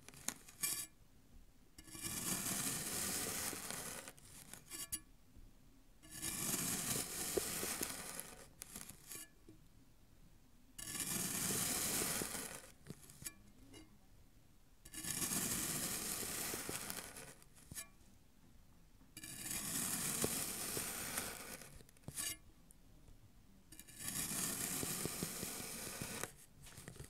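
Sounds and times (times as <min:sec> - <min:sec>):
knife cutting packed sand: 0:01.9 - 0:04.8, 0:06.1 - 0:09.2, 0:10.8 - 0:13.4, 0:14.9 - 0:17.8, 0:19.2 - 0:22.4, 0:23.8 - 0:27.0.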